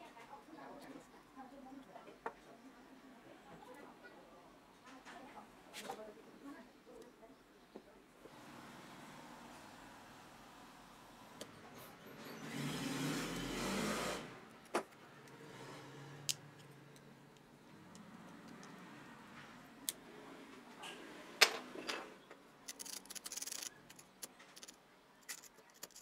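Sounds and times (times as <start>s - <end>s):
metal pick clicking and scraping: 22.6s - 26.0s.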